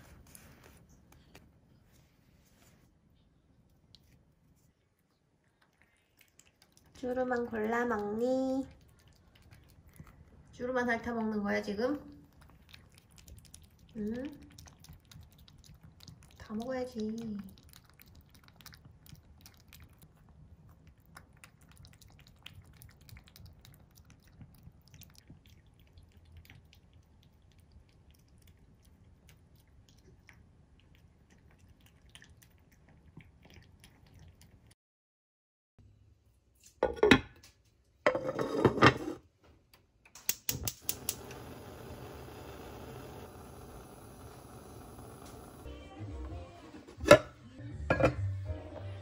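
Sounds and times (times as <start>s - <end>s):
cat licking and chewing: 3.7s - 34.8s.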